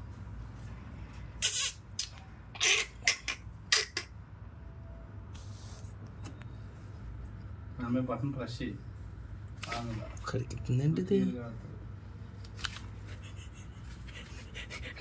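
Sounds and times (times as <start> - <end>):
sugar glider hissing bursts: 1.4 - 1.8.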